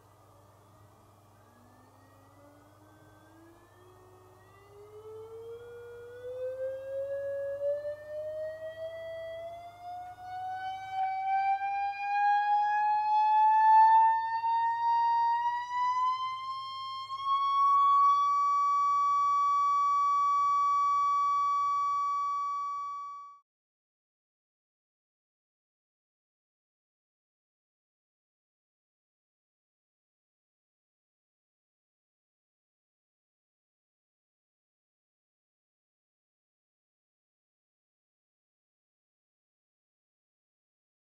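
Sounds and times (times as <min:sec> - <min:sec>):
sweeping test tone from loudspeaker: 0:00.0 - 0:23.3.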